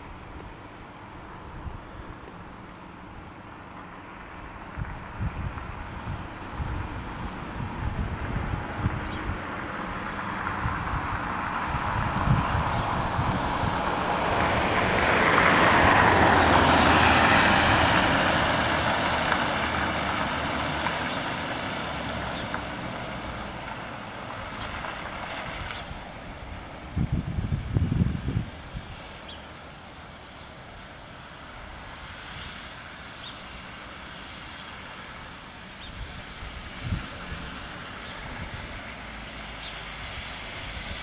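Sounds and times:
vehicle rushing past: 0:03.9 - 0:29.5, 0:31.8 - 0:41.0
wind buffeting microphone: 0:04.6 - 0:22.5, 0:24.6 - 0:29.3, 0:35.8 - 0:41.0.

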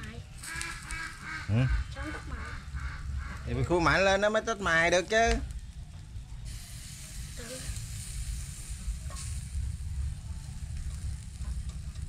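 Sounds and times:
low rumble: 0:00.0 - 0:12.0
food sizzling on a grill: 0:06.4 - 0:12.0.

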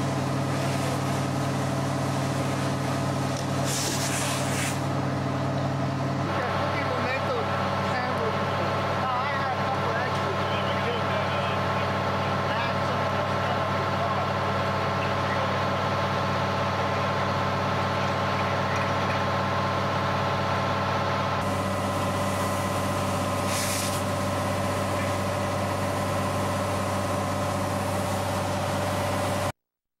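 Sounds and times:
fire engine diesel droning: 0:00.0 - 0:29.6
brief hiss: 0:03.6 - 0:04.8, 0:23.4 - 0:24.1.

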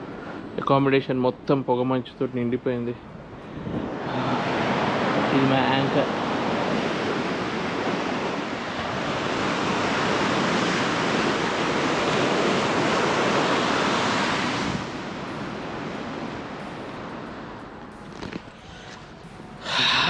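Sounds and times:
bow wave rushing along hull: 0:00.0 - 0:20.0.

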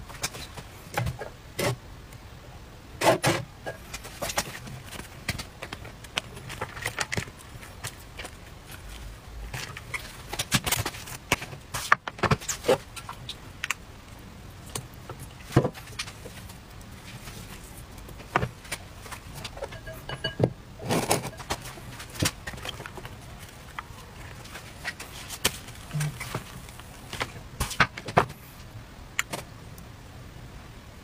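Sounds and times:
hands handling crepes and plate: 0:03.7 - 0:13.8, 0:14.7 - 0:29.5
short rustling: 0:20.8 - 0:28.7.

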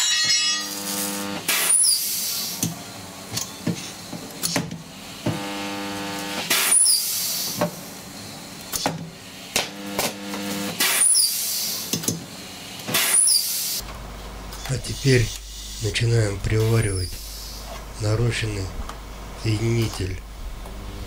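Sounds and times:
welder buzzing: 0:00.0 - 0:02.2, 0:05.2 - 0:07.1, 0:09.5 - 0:11.4, 0:12.9 - 0:21.0
welding bursts: 0:00.5 - 0:02.6, 0:05.3 - 0:07.5, 0:09.5 - 0:11.8.

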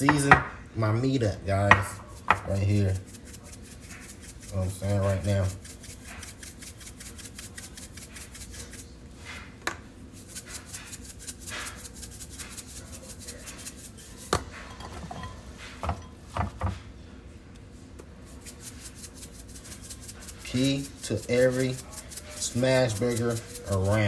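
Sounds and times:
shaker rattling: 0:01.9 - 0:09.4, 0:10.2 - 0:14.4, 0:18.3 - 0:24.0.

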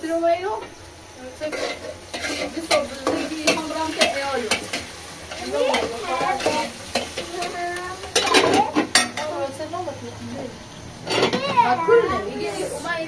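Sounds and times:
food sizzling: 0:00.0 - 0:13.0
utensil scraping a metal pot: 0:01.4 - 0:07.5.

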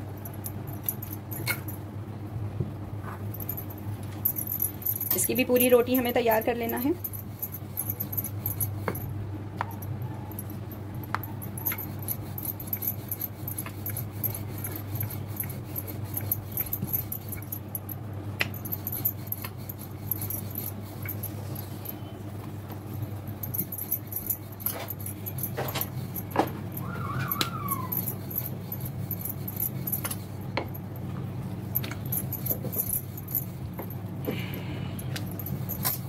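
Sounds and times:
rolling pin rolling dough: 0:11.0 - 0:17.8.

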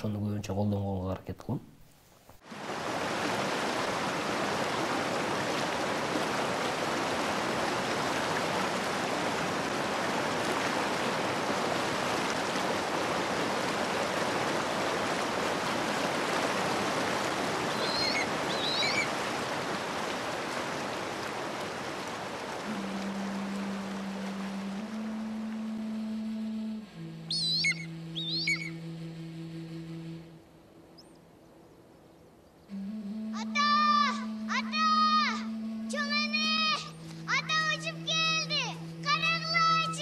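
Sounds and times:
river water roaring: 0:02.4 - 0:40.0
high chirps: 0:17.7 - 0:19.1, 0:27.0 - 0:28.9.

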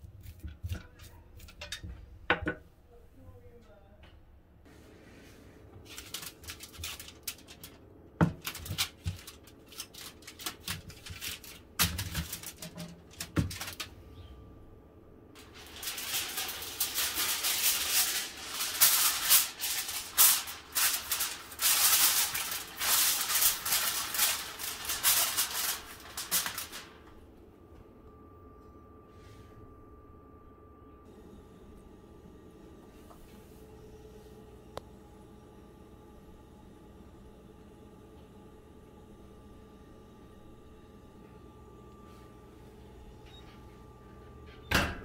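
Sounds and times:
aluminium foil crinkling: 0:05.8 - 0:14.0, 0:15.4 - 0:27.2.

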